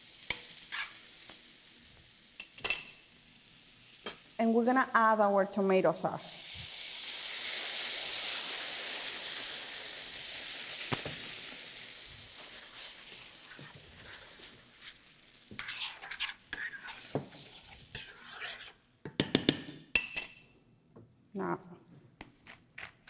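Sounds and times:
sauce sizzling in frying pan: 0.0 - 18.8
spoon scraping and knocking pan: 14.8 - 20.4.

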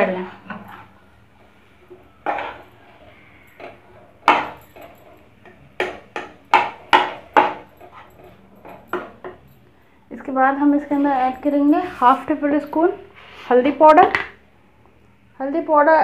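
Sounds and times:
metal spatula knocking and scraping: 2.2 - 2.6, 3.5 - 4.6, 5.4 - 8.1.

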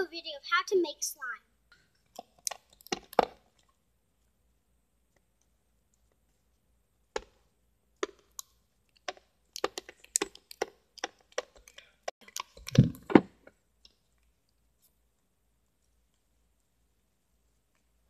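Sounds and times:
slime clicking and popping: 2.1 - 3.5, 8.0 - 13.0.

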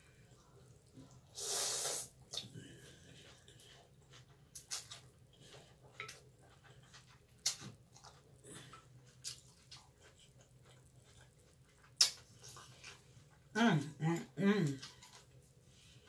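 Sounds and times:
slurping and chewing: 0.3 - 13.5.

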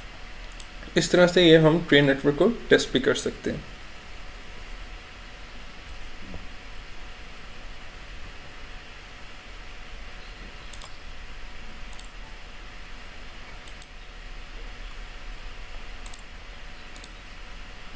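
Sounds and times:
low hum: 0.0 - 17.9
steady hiss: 0.0 - 17.9
computer mouse clicks: 0.5 - 0.7, 10.7 - 11.0, 11.9 - 12.2, 13.6 - 14.0, 16.0 - 16.3, 16.9 - 17.2.

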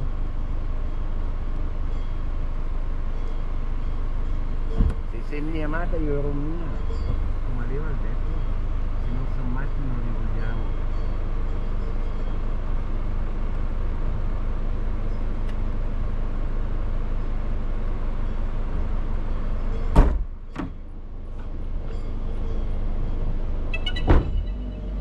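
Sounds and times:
vehicle rumble and hiss: 0.0 - 25.0.

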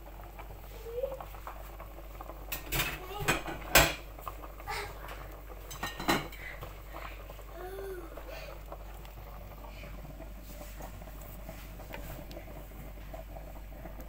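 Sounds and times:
cookware clattering and clinking: 2.5 - 4.1, 5.1 - 6.4.

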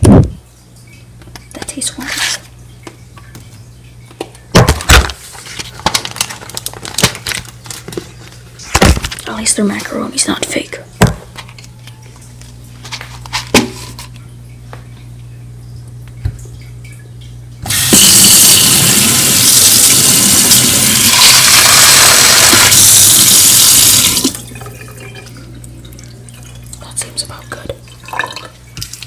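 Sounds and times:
tap running water into sink: 17.6 - 25.4.

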